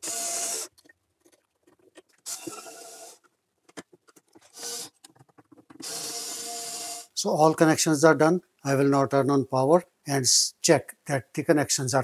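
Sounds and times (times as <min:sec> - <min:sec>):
clicks and knocks of handling: 0:00.7 - 0:02.3, 0:03.2 - 0:05.9.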